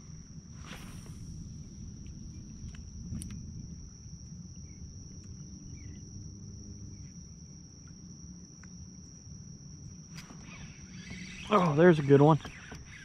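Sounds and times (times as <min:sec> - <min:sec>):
wind rumble on microphone: 0:00.0 - 0:08.2
high-pitched insect trill: 0:00.0 - 0:13.0.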